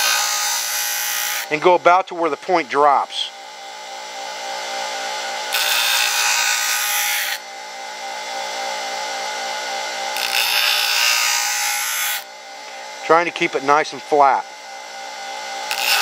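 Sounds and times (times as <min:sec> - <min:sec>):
bench grinder running: 0:00.0 - 0:16.0
steel grinding on wheel: 0:05.4 - 0:07.4, 0:10.1 - 0:12.2, 0:15.6 - 0:16.0.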